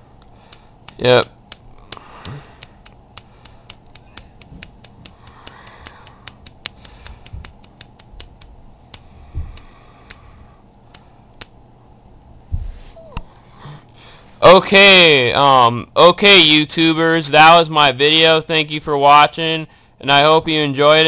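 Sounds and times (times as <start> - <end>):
soft handling thumps: 12.4 - 13.3.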